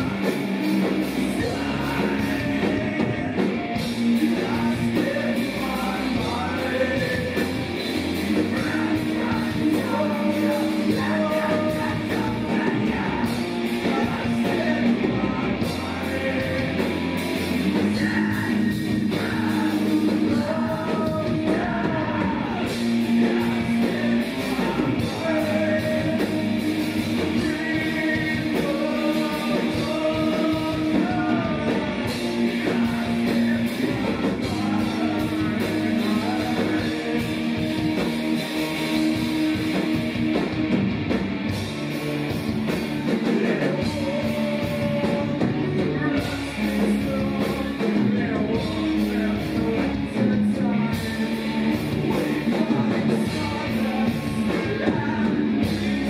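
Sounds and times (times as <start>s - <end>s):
person singing: 0.0s - 38.0s, 42.8s - 56.0s
live rock band playing: 0.0s - 56.0s.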